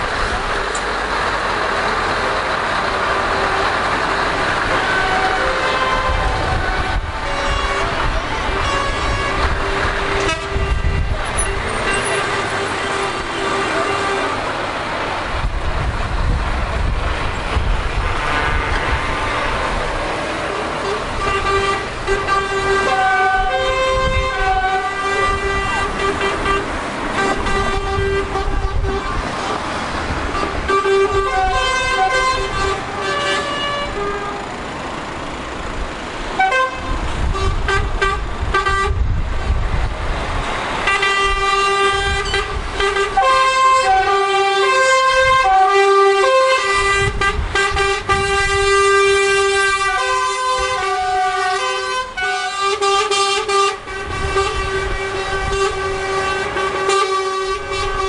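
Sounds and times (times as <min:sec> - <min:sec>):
passing traffic: 0:00.0 - 0:58.0
truck engines rumbling: 0:00.0 - 0:58.0
lorry air horns blowing: 0:04.6 - 0:14.5, 0:18.0 - 0:19.2, 0:20.5 - 0:29.6, 0:30.3 - 0:34.5, 0:36.4 - 0:39.0, 0:40.8 - 0:58.0.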